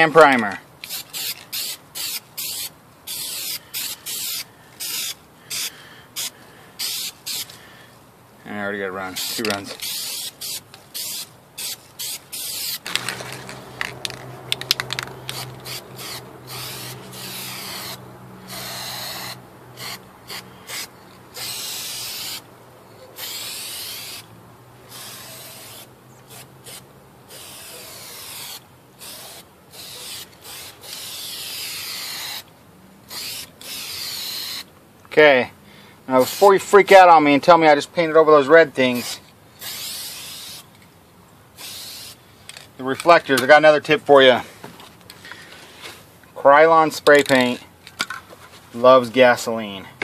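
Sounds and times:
aerosol spray can hissing: 0.9s - 7.6s, 9.2s - 22.4s, 23.2s - 24.3s, 24.9s - 32.5s, 33.1s - 34.7s, 39.0s - 40.7s, 41.6s - 42.2s.

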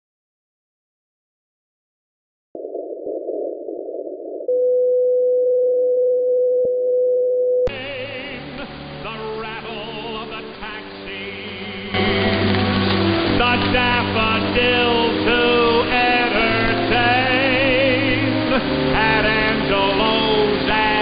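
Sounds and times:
muffled radio music: 7.7s - 21.0s
radio hiss: 7.7s - 21.0s.

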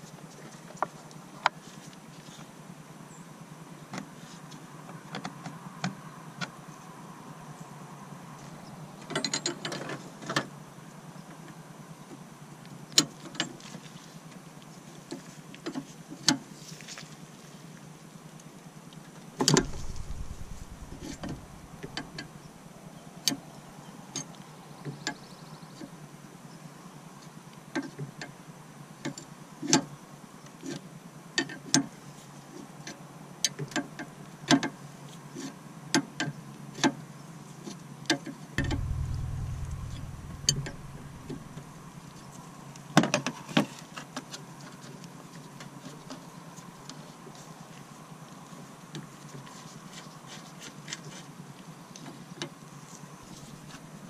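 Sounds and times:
heavy thump: 19.6s - 22.6s, 38.6s - 42.2s.

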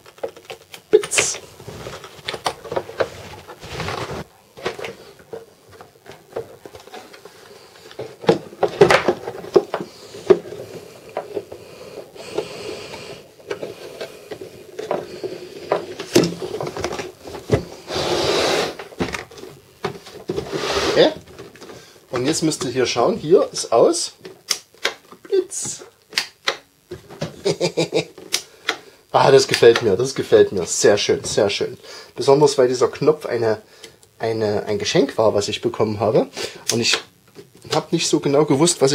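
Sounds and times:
plastic scraping rub: 1.4s - 22.6s
plastic parts clicking and knocking: 4.6s - 11.6s.

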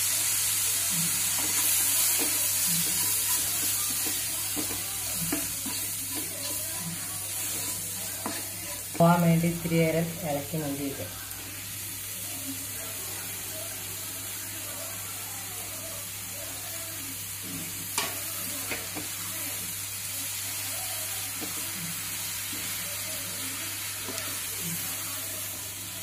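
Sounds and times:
mushrooms sizzling in a frying pan: 0.0s - 26.0s
wooden spatula stirring and scraping: 0.9s - 9.5s.

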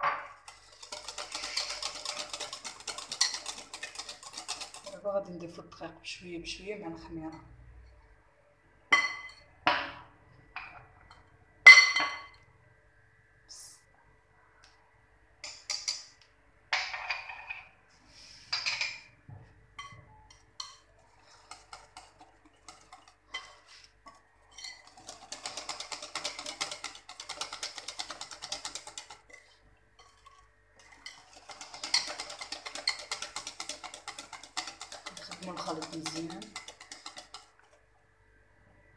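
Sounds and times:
whisk clinking against glass bowl: 0.5s - 5.0s, 19.8s - 23.8s, 24.5s - 37.7s.

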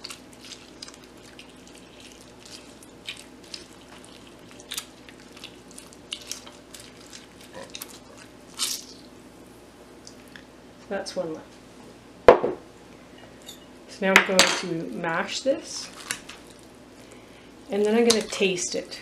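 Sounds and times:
juice dripping: 0.0s - 9.2s, 9.9s - 10.5s
wet squishing of citrus juicing: 0.0s - 9.4s, 15.8s - 18.6s.

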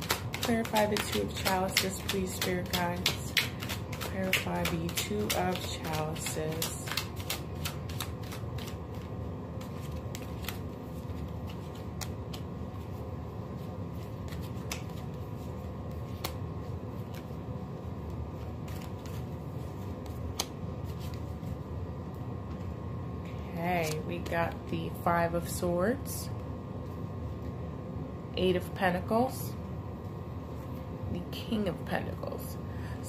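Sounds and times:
cards being shuffled: 0.0s - 17.4s, 18.0s - 21.6s, 23.7s - 24.6s.

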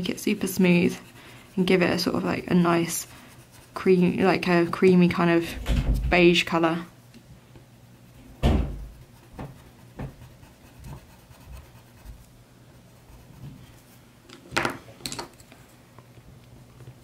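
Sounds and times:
pencil scratching on paper: 0.0s - 4.7s, 8.8s - 12.2s, 12.9s - 14.0s
knock: 8.4s - 10.2s.

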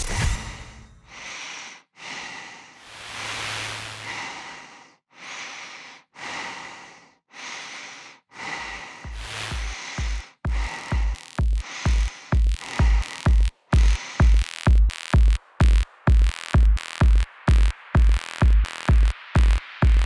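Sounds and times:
heavy breathing: 0.4s - 14.5s.

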